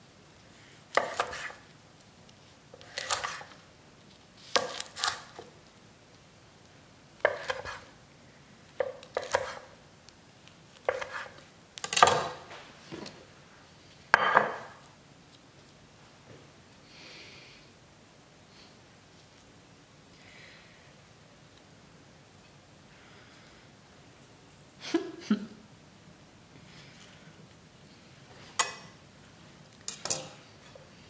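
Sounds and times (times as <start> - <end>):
knife slicing sushi roll: 1.0 - 1.6, 2.8 - 3.5, 10.8 - 11.4.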